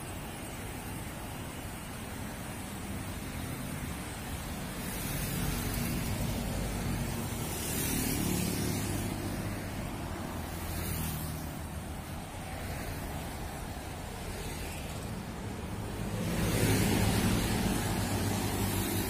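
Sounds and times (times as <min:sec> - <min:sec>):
tyre hiss of passing vehicles: 0:00.0 - 0:19.0.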